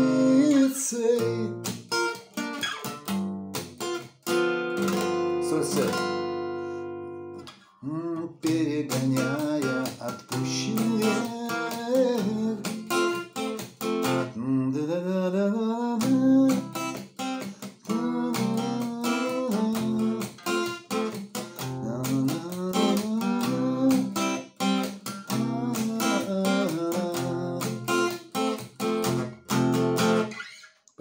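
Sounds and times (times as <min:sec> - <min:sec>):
man singing: 0:00.0 - 0:01.7, 0:04.8 - 0:06.0, 0:07.7 - 0:13.4, 0:14.2 - 0:28.6
acoustic guitar strumming chords: 0:00.0 - 0:14.6, 0:15.8 - 0:30.4.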